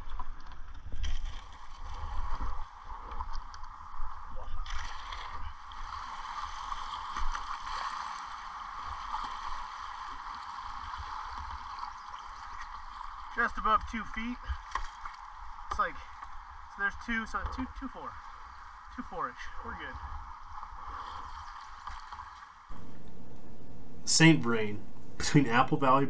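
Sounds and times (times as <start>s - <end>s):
paddle splashes: 4.6s - 13.5s, 14.1s - 16.5s, 19.9s - 22.6s.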